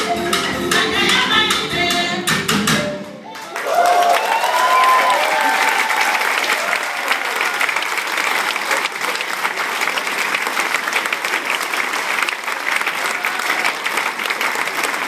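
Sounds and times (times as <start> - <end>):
audience applauding: 3.3 - 15.0.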